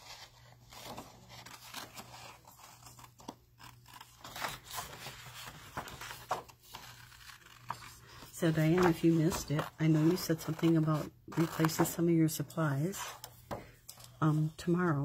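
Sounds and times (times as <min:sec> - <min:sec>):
scissors snipping paper: 0:08.5 - 0:12.1.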